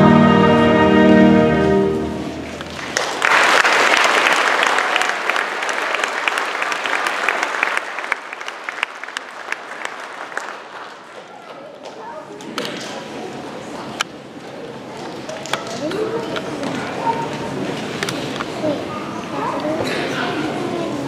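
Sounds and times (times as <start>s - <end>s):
children's choir singing: 0.0s - 2.2s
audience applauding: 2.4s - 11.9s.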